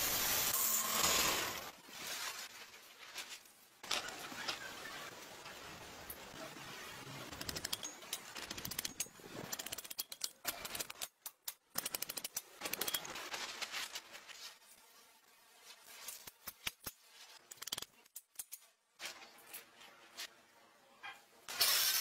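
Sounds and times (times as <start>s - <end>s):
bolts clicking on steel: 7.4s - 13.0s.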